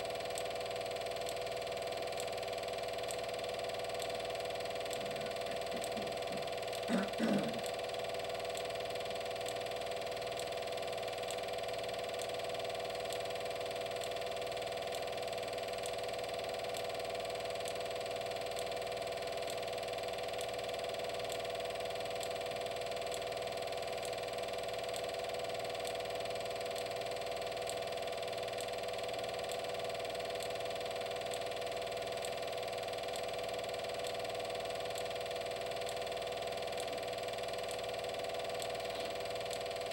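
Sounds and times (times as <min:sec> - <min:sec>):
film projector motor humming: 0:00.0 - 0:39.9
faint regular tick: 0:03.9 - 0:04.2.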